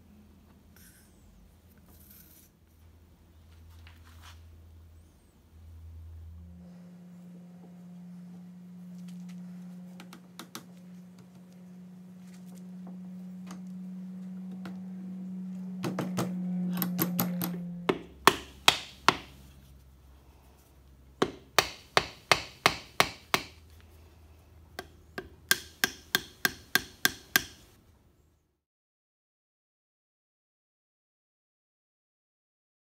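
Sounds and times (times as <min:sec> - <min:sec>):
low hum: 0:00.0 - 0:28.5
mallet striking wooden handle: 0:15.8 - 0:19.4, 0:21.2 - 0:23.6, 0:24.8 - 0:27.6.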